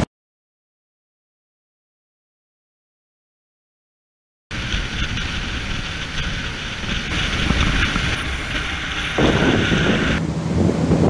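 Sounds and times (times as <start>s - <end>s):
motorboat engine drone: 4.5s - 11.0s
water rushing: 4.5s - 11.0s
wind buffeting microphone: 4.5s - 11.0s.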